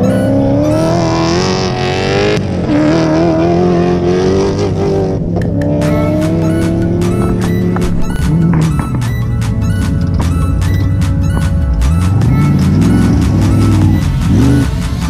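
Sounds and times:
background music with steady beat: 0.0 - 15.0
rally car engine accelerating: 0.0 - 15.0.

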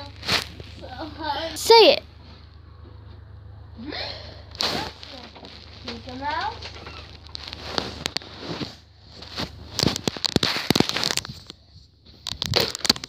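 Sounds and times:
phone microphone handling noise: 6.6 - 13.0.

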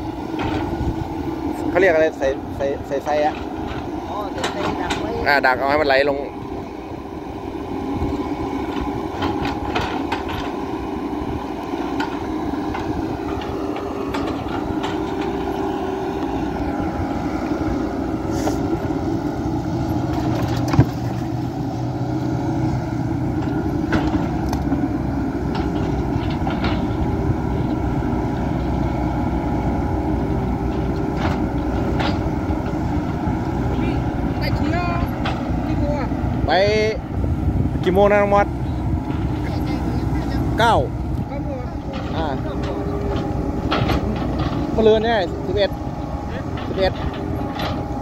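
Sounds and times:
excavator diesel engine running: 0.0 - 48.0
metal clanks: 41.9 - 48.0.

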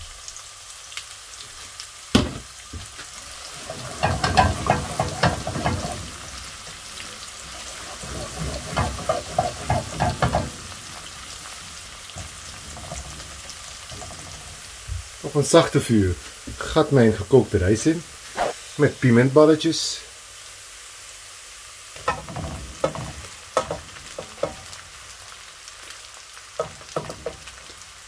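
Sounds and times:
vegetables sizzling in oil: 0.0 - 28.0
spatula scraping pan: 3.4 - 15.2, 22.0 - 24.9, 26.6 - 27.8.

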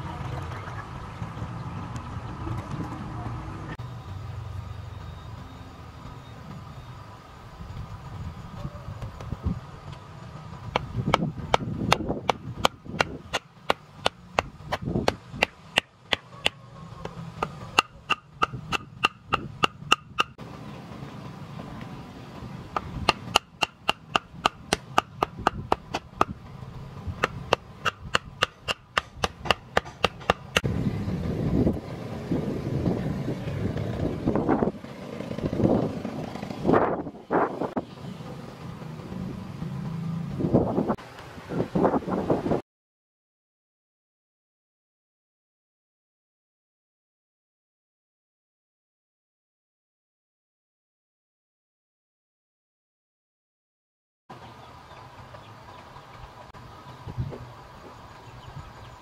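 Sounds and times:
tool knocking on bamboo: 10.7 - 16.6, 17.4 - 20.4, 22.8 - 26.4, 27.2 - 30.7.

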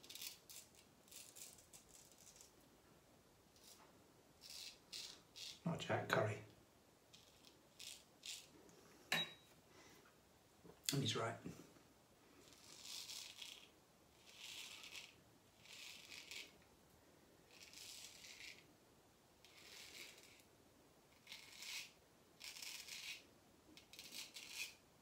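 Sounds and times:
razor scraping stubble: 0.0 - 2.6, 3.6 - 5.6, 7.1 - 8.5, 12.4 - 16.6, 17.5 - 18.7, 19.4 - 20.5, 21.1 - 23.2, 23.8 - 24.8.

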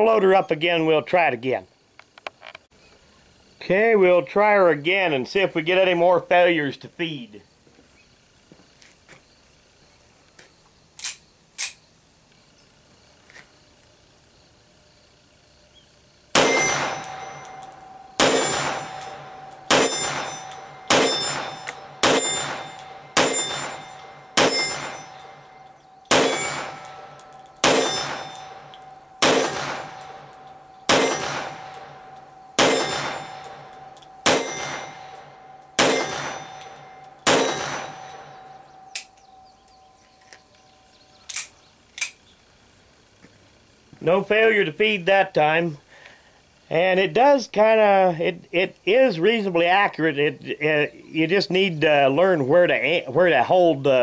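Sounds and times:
pistol shots: 16.4 - 39.2
steel target clang: 16.4 - 40.1.

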